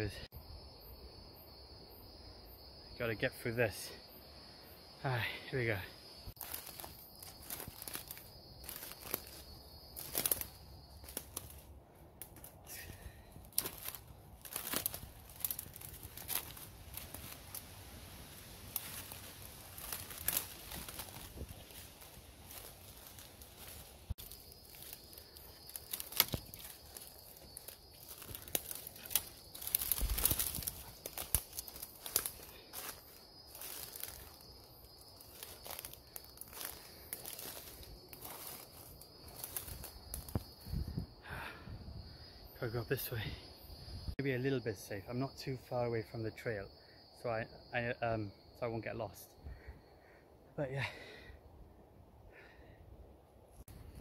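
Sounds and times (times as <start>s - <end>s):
dry leaves and twigs crackling: 5.2s - 41.1s
rustling through undergrowth: 6.1s - 41.1s
branches swishing: 6.4s - 11.7s, 13.5s - 34.4s.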